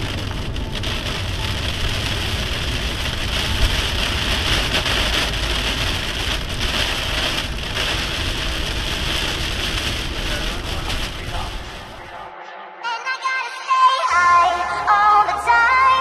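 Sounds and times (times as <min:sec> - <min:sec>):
rain hitting car windshield: 0:00.0 - 0:12.1
tyre and road noise: 0:00.0 - 0:12.3.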